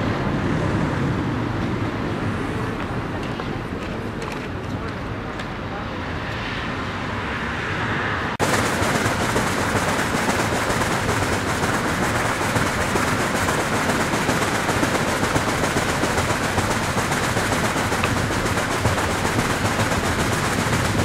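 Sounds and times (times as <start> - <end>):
water splashing over weir: 8.4 - 21.0.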